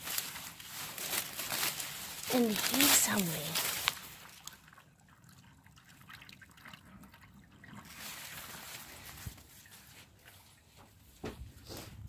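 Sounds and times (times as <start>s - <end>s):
faint trickling water: 1.9s - 11.2s.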